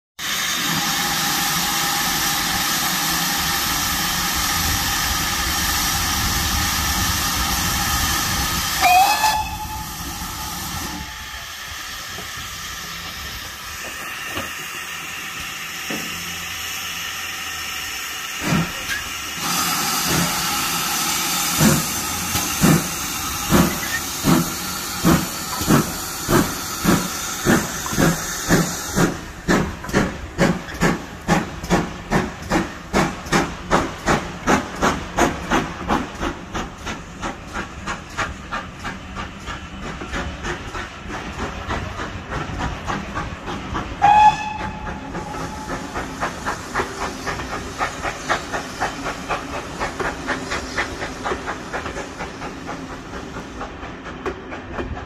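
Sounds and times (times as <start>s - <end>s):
steam hissing: 0.2s - 55.0s
steam whistle: 8.8s - 11.4s, 44.0s - 45.9s.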